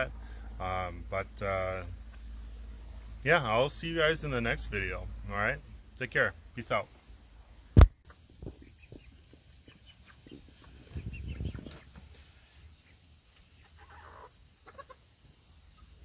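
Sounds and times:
chickens clucking: 8.4 - 16.0.

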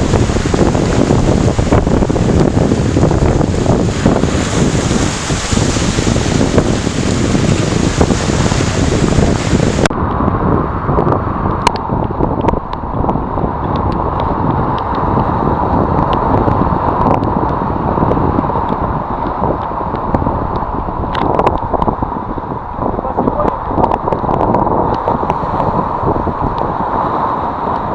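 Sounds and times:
surf breaking on rocks: 0.0 - 9.9
wind buffeting microphone: 0.0 - 27.9.

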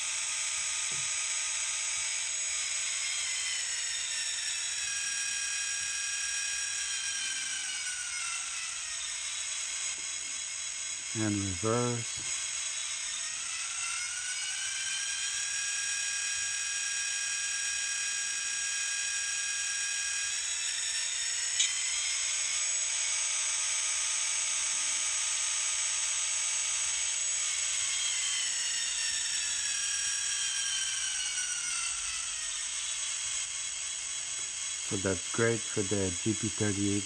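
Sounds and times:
sharp click: 21.6 - 21.8.

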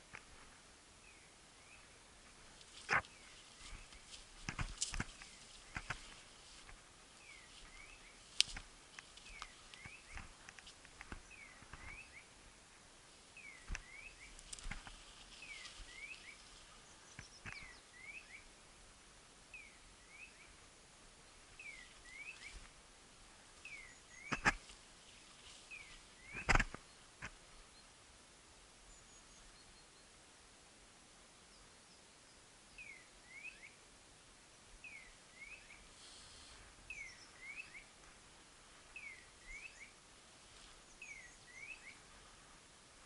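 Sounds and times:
twigs and brush crackling: 2.2 - 12.3, 13.0 - 18.3, 21.3 - 27.4, 36.0 - 43.0.

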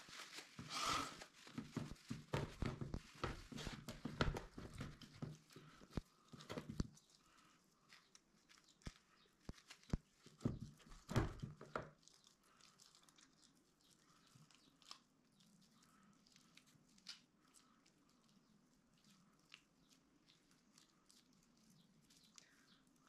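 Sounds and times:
paper towel tearing: 0.0 - 1.6
wet paper squeezing: 0.0 - 23.0.

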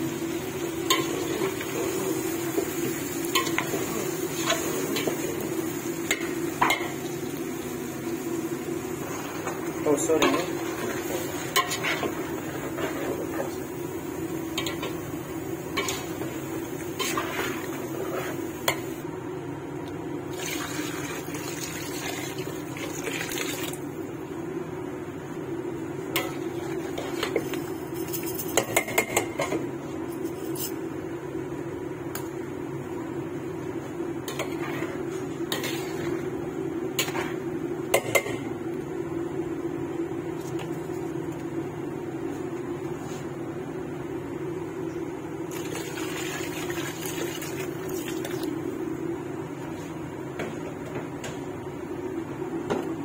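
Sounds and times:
water pouring into a pot: 20.3 - 23.8, 45.5 - 48.5.

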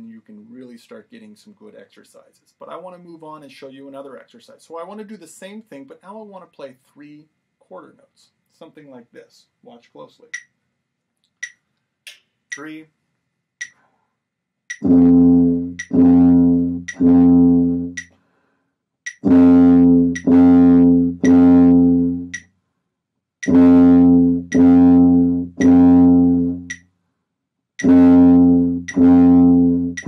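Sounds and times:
metronome clicking: 10.3 - 10.5, 11.4 - 12.8, 14.7 - 14.9, 15.8 - 16.0, 16.8 - 17.1, 17.9 - 18.2, 19.1 - 19.3, 20.1 - 20.4, 21.2 - 21.4, 22.3 - 22.5, 23.4 - 23.6, 24.5 - 24.8, 25.6 - 25.8, 26.6 - 26.9, 27.8 - 28.0, 28.8 - 29.2
tuba notes: 14.7 - 18.1, 19.1 - 22.4, 23.4 - 26.8, 27.8 - 30.0.

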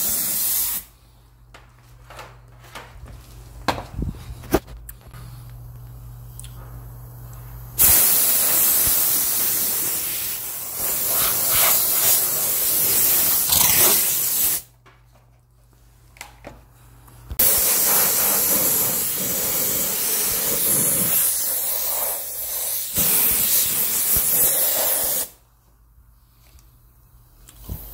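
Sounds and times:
steam cleaner hissing: 0.0 - 0.9, 7.8 - 14.7, 17.4 - 25.4.

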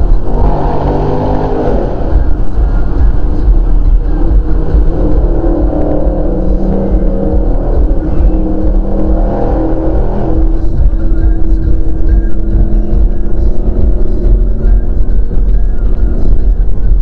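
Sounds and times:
car engine droning in tunnel: 0.0 - 17.0.

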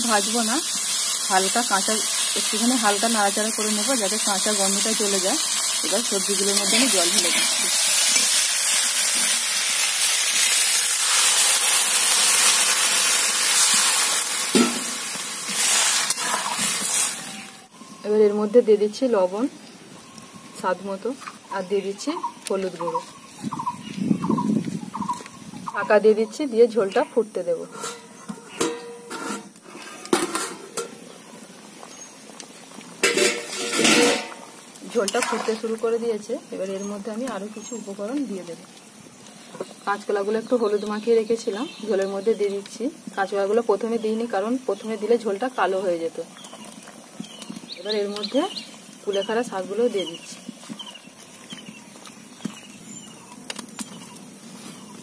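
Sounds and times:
water hissing in hot oil: 0.0 - 17.7, 29.1 - 55.0
metal cookware clatter: 27.7 - 29.5, 30.1 - 31.0, 33.0 - 34.4
metal lid clanking on pot: 27.8 - 29.5, 30.1 - 31.0, 33.0 - 34.4.

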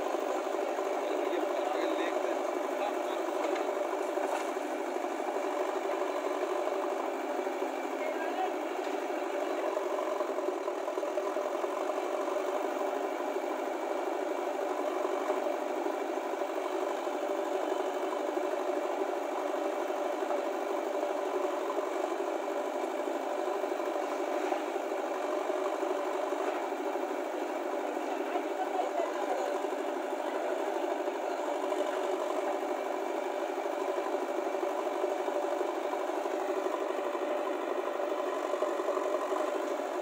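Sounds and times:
diesel engines idling: 0.0 - 40.0.

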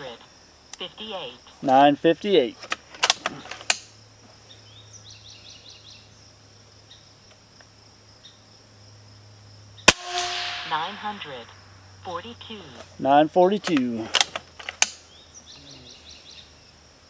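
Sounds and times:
insects buzzing: 0.0 - 17.0
rifle handling clicks: 2.6 - 3.9, 13.6 - 15.0
bird chirping: 3.2 - 7.2, 15.0 - 16.8
air rifle shot: 9.9 - 11.5.

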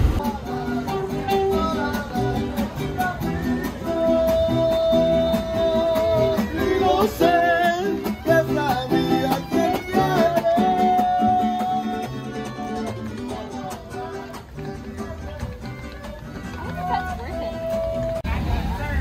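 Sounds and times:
man singing: 0.0 - 19.0
strummed guitars: 0.0 - 19.0
violins: 4.9 - 18.3.

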